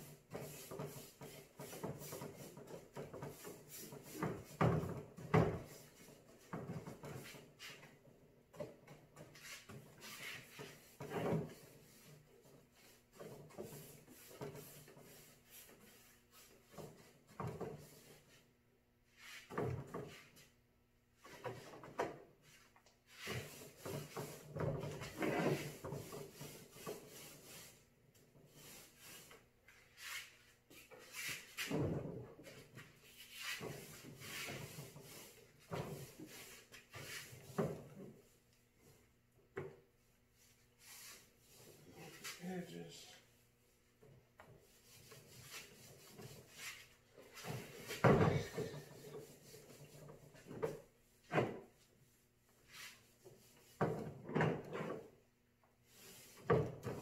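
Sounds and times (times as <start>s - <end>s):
paintbrush swishing on wood: 0.0s - 4.6s, 9.2s - 17.2s, 22.4s - 31.8s, 32.5s - 38.4s, 40.4s - 43.0s, 44.6s - 50.7s, 55.9s - 56.5s.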